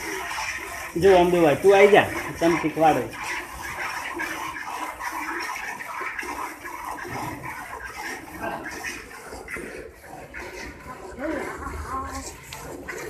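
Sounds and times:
milk squirting into metal pail: 0.0s - 13.0s.

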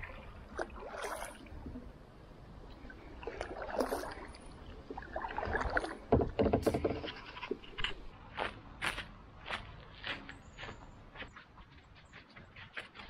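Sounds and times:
paddle splashing in water: 0.0s - 1.8s, 3.0s - 7.8s.

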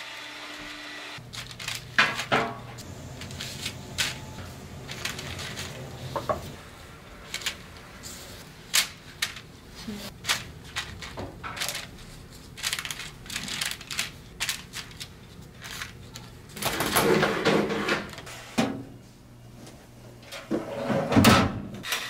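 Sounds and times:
parchment paper rustling: 1.2s - 18.3s.

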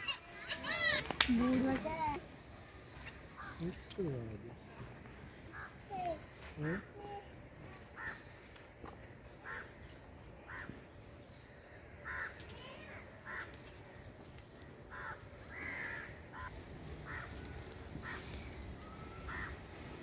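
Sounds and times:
crows cawing: 5.5s - 5.8s, 8.0s - 8.4s, 9.4s - 9.8s, 10.5s - 10.8s, 12.0s - 12.4s, 13.2s - 13.7s, 14.9s - 20.0s.

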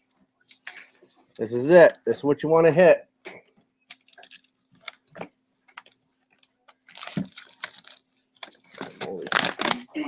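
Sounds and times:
cardboard tearing: 6.8s - 9.9s.

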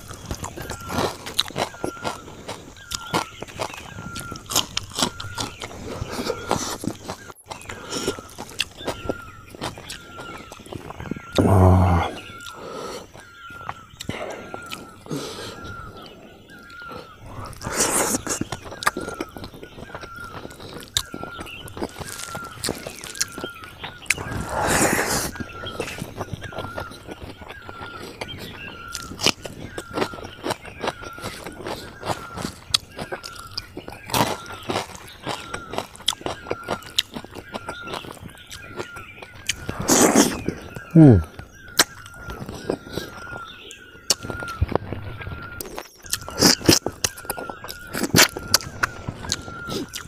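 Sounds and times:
wet chewing and lip-smacking: 0.0s - 50.0s.

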